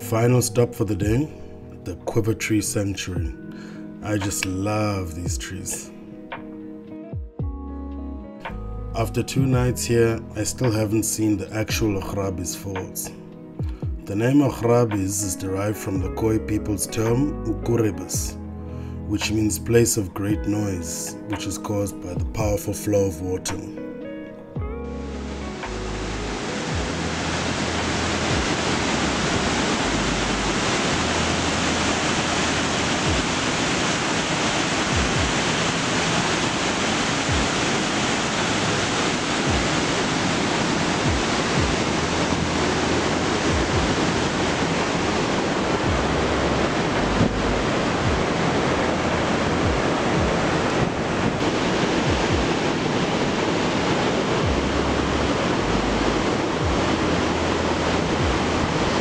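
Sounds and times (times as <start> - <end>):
waterfall thundering: 25.1 - 59.0.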